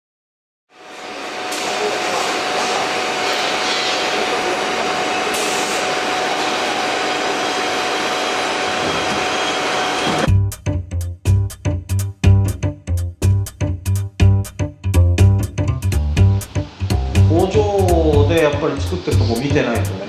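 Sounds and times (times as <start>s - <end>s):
metalworking machine whirring: 0.8s - 10.3s.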